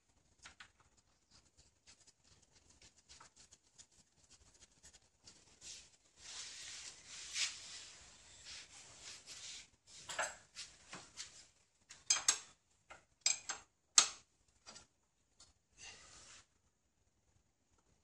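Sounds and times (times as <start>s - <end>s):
rustling: 0.4s - 11.6s.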